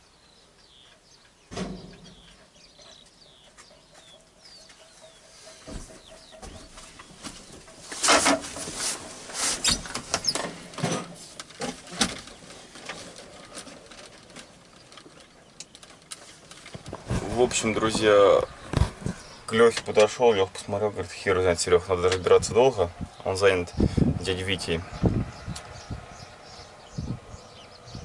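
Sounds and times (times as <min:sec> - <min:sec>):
rustling: 0:04.7 - 0:20.1.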